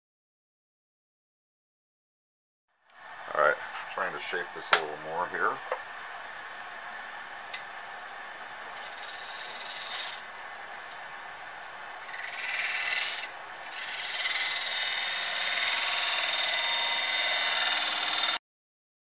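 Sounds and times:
sanding wood on a lathe: 8.8 - 10.3, 12.0 - 18.4.

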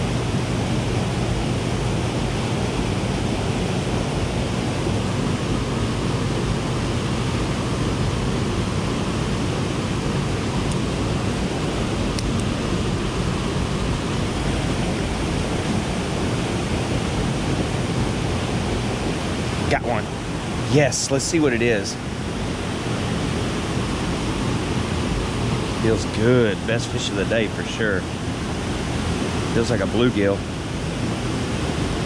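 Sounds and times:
rushing turbulent water: 0.0 - 32.0.

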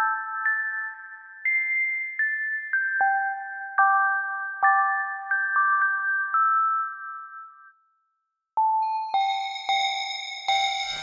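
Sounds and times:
synthesizer bell-like chime notes: 8.7 - 11.0.

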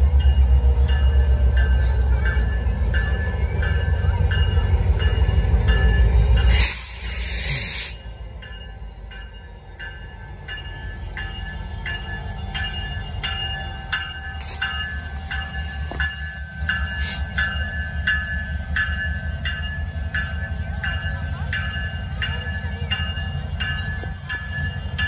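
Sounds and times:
train rumbling past: 0.0 - 25.0
bell ringing: 8.4 - 25.0.

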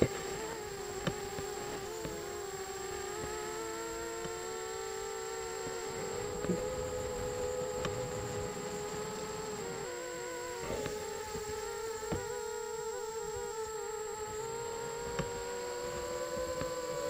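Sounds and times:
quadcopter buzzing whine: 0.0 - 17.0.

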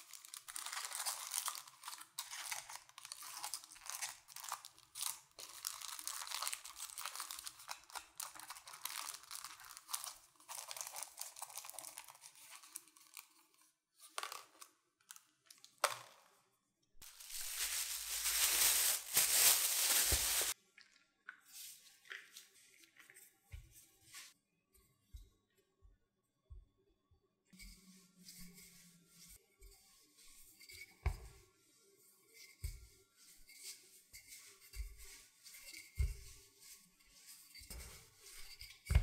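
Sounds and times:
plastic bag rustling: 0.0 - 13.2, 17.0 - 20.6
aluminium foil crinkling: 0.0 - 13.5, 17.0 - 20.6.

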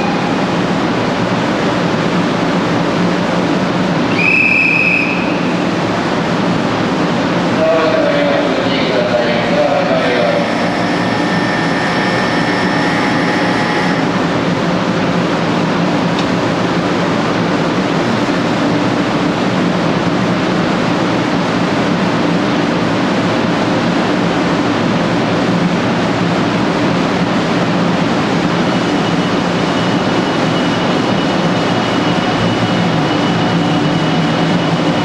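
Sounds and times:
train rushing past: 0.0 - 35.0
steady high tone: 7.6 - 14.6, 28.8 - 35.0.

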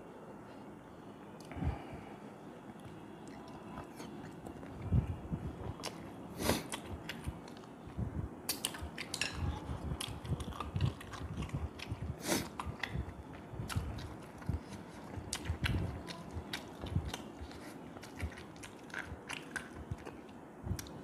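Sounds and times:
man chewing: 2.7 - 5.0, 5.6 - 7.8, 10.0 - 21.0.

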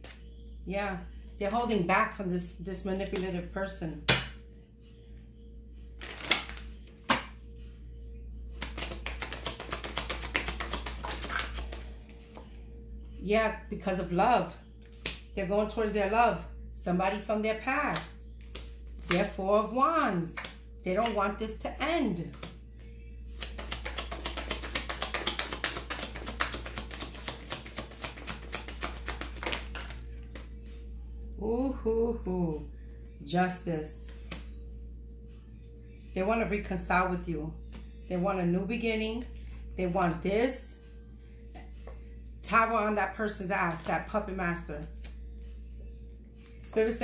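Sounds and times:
soft background music: 0.0 - 47.0
cards flicking rapidly: 8.6 - 11.8, 23.4 - 30.0
cards tapping and rustling: 8.6 - 12.5, 23.4 - 30.5.

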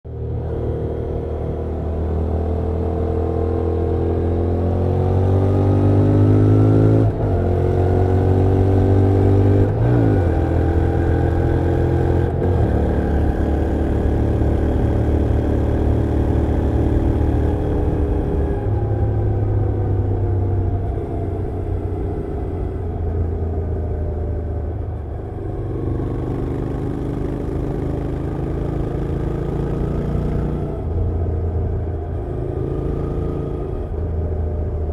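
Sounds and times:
motorcycle engine accelerating: 0.1 - 34.9.

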